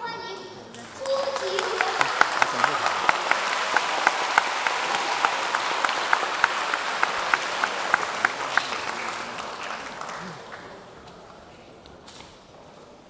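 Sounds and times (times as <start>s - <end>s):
sharp individual claps: 0.7s - 10.7s
audience applauding: 0.7s - 11.0s.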